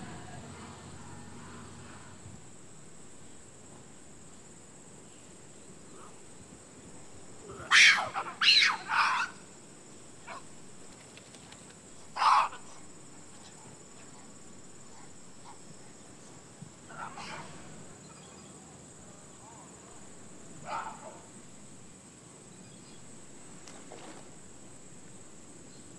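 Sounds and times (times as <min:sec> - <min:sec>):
baboons calling: 0:07.4 - 0:09.4, 0:12.1 - 0:14.3, 0:16.9 - 0:17.7.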